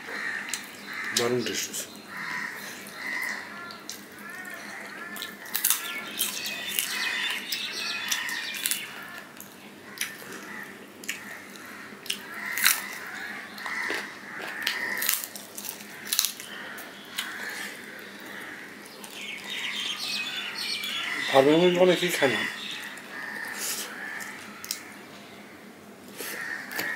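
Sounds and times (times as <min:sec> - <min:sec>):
man chewing food: 0:02.4 - 0:20.3.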